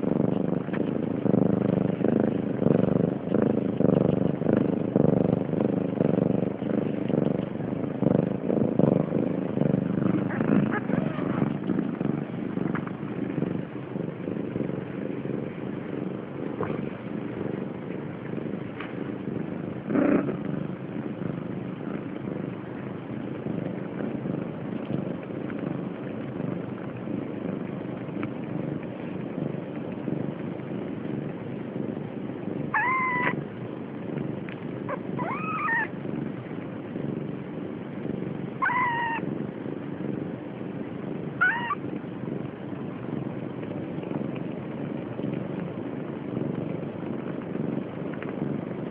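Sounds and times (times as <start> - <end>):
cat purring: 0.0 - 48.9
kitten mewing: 10.1 - 11.7, 32.7 - 33.4, 34.9 - 35.9, 38.6 - 39.2, 41.4 - 41.8.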